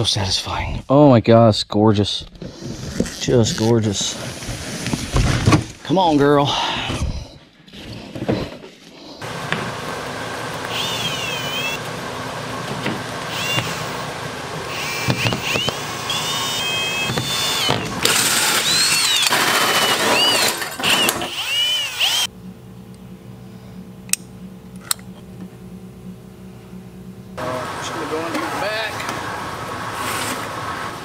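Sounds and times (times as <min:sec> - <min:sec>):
drill humming: 0:09.2 - 0:22.3
drill hole saw cutting wood: 0:10.6 - 0:11.8, 0:13.2 - 0:22.3.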